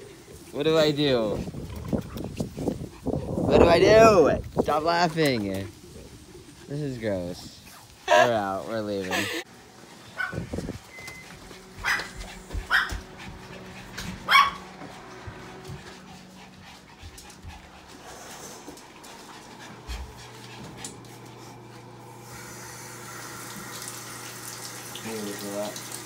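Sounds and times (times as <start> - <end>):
dog panting: 1.0 - 9.4, 11.1 - 22.1
dog yapping: 10.2 - 10.4, 11.8 - 13.1, 14.2 - 14.7
faucet running: 22.1 - 26.0.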